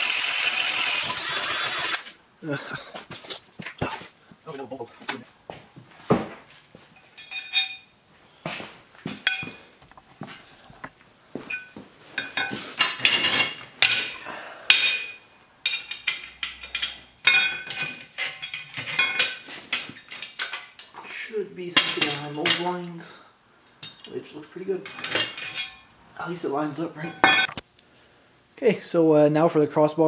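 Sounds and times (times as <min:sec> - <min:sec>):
steel bar clanking on metal frame: 0:24.8 - 0:25.9, 0:27.0 - 0:27.6.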